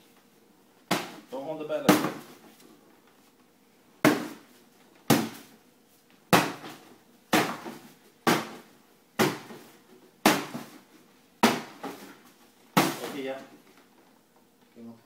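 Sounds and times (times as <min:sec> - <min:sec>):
bat whacking a pinata: 0:00.8 - 0:02.4, 0:04.0 - 0:05.5, 0:06.3 - 0:10.8, 0:11.4 - 0:13.4.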